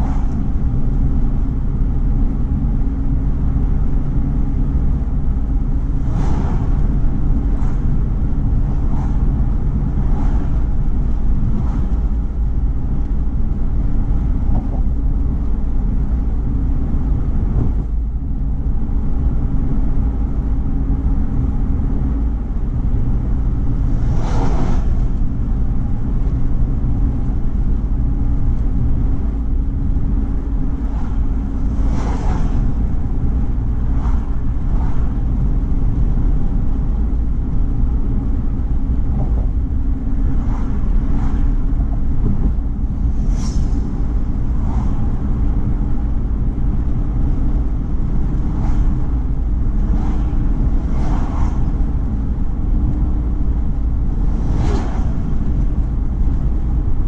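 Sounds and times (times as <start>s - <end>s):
road and engine rumble: 0.0s - 57.0s
rushing swishes: 5.9s - 8.0s, 8.6s - 12.2s, 23.8s - 25.5s, 30.7s - 35.6s, 40.2s - 46.0s, 48.0s - 52.9s, 53.9s - 57.0s.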